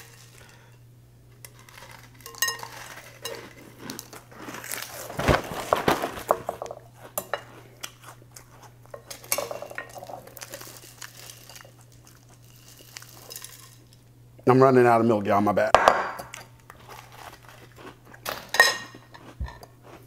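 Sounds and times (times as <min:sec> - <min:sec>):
metal spoon scraping glass bowl: 0:01.5 - 0:04.0
dry cereal rattling in bowl: 0:09.4 - 0:14.0.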